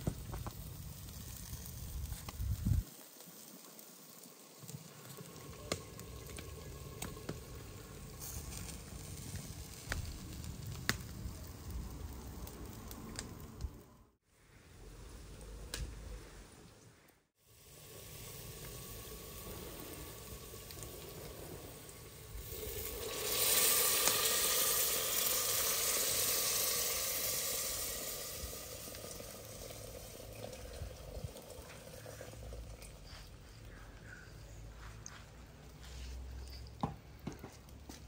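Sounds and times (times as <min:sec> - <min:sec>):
food sizzling in hot oil: 0:00.0 - 0:12.4, 0:17.4 - 0:33.1.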